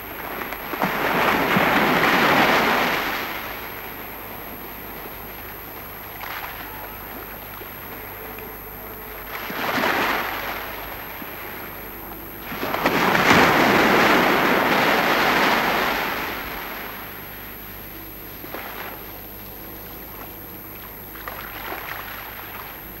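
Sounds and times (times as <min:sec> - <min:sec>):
ocean surf washing up beach: 0:00.0 - 0:04.2, 0:09.3 - 0:11.6, 0:12.4 - 0:17.5.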